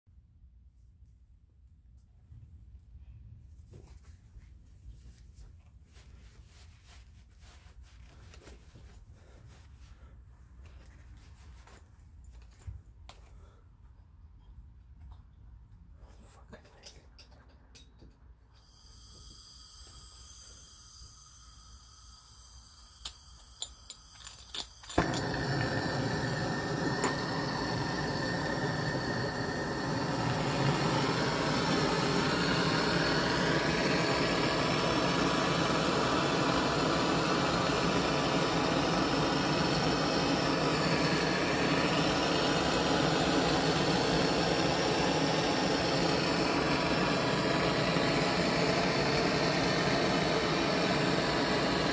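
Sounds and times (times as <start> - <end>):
gas torch hissing: 18.6 - 51.9.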